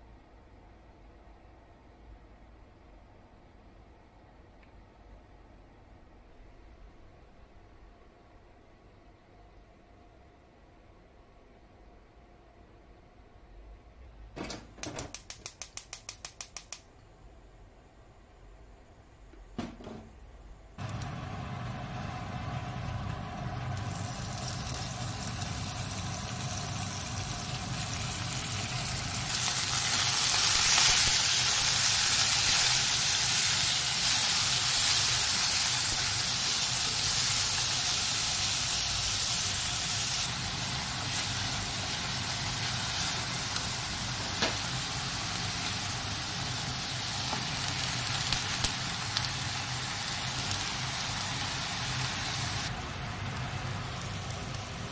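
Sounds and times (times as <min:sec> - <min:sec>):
low steady hum: 0:16.9 - 0:30.0
pork sizzling in a frying pan: 0:20.9 - 0:54.9.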